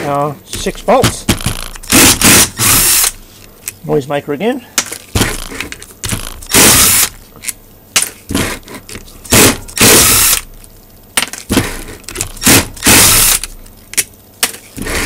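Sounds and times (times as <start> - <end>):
cordless power driver running: 1.3 - 3.2, 5.2 - 7.2, 9.3 - 10.5, 11.5 - 13.6.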